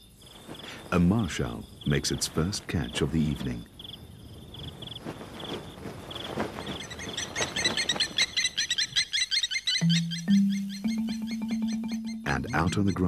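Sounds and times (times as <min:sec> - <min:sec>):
crickets chirping in pulses: 0:00.0 - 0:13.0
chorus of rapid high chirps: 0:06.8 - 0:13.0.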